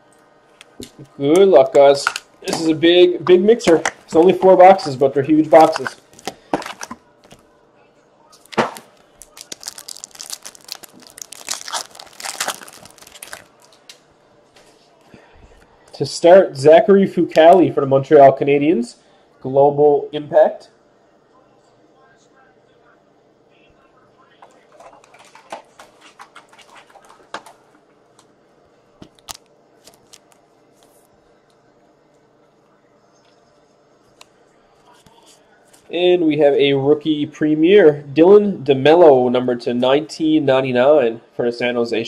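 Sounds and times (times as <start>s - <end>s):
trading cards crackling and clicking: 0.6s - 7.5s, 8.3s - 14.0s, 24.4s - 28.3s, 29.0s - 31.1s
card wrapper tearing and crinkling: 5.5s - 7.4s, 8.4s - 13.8s.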